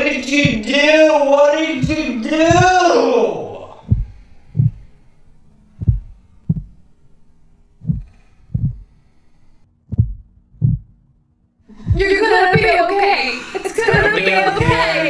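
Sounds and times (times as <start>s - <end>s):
heartbeat double thumps: 0.0s - 1.0s, 1.8s - 3.0s, 3.8s - 7.0s, 7.7s - 11.2s, 11.8s - 13.2s, 13.8s - 15.0s.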